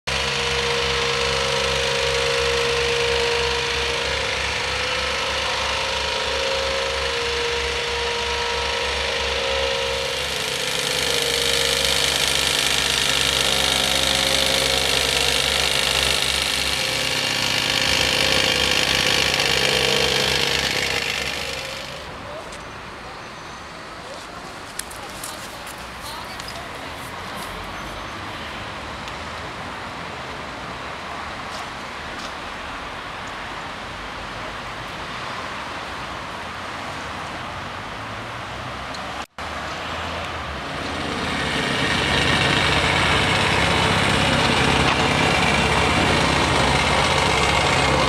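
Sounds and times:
excavator diesel engine pulsing: 0:00.1 - 0:28.3, 0:39.8 - 0:48.0.

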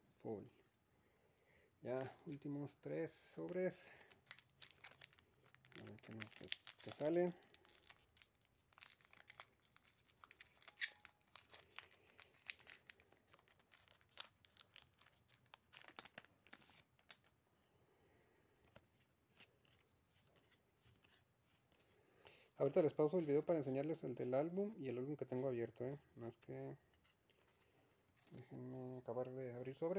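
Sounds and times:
foil wrapper tearing and crinkling: 0:04.2 - 0:17.2.

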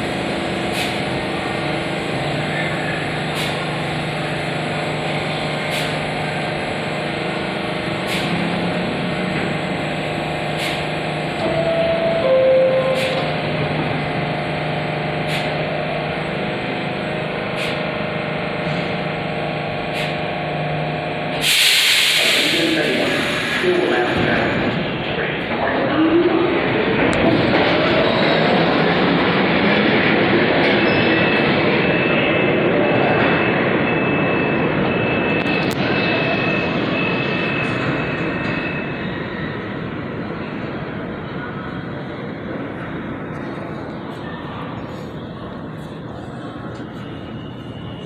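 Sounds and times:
train equipment hum and whine: 0:00.0 - 0:48.0
loud hiss: 0:21.4 - 0:23.8.

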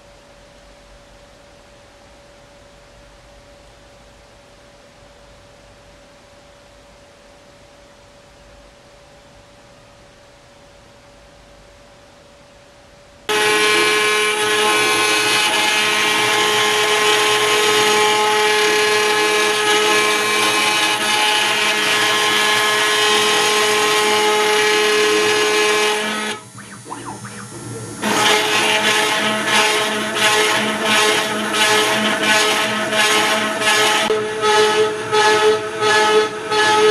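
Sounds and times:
cnc mill whining while cutting metal: 0:13.3 - 0:36.9.

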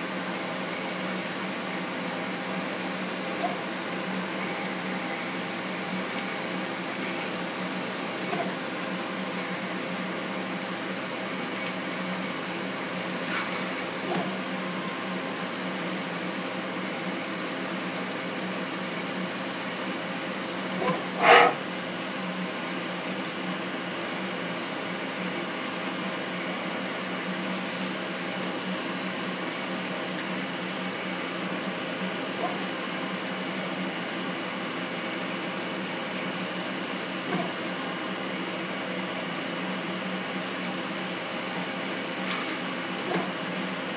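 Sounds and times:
machining center humming: 0:18.0 - 0:22.5
end mill drilling metal: 0:20.3 - 0:21.8
short loud rasp: 0:20.8 - 0:21.7.

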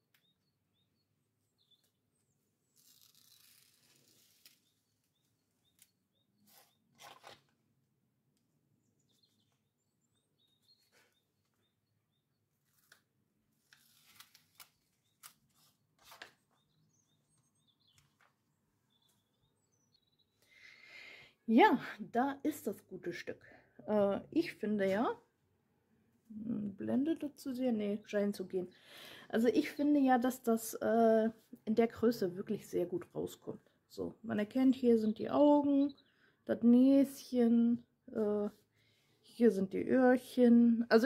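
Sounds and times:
plastic sheet rustling and crinkling: 0:02.7 - 0:05.2, 0:06.5 - 0:07.5.

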